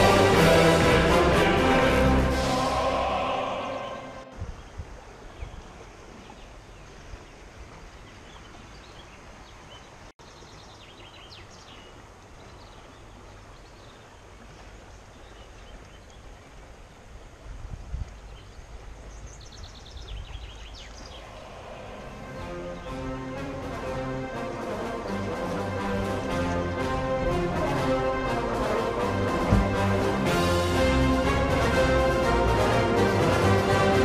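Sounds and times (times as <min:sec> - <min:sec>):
river running over stones: 0:00.0 - 0:34.0
small birds chirping: 0:18.1 - 0:23.5
low rumble: 0:21.1 - 0:24.3.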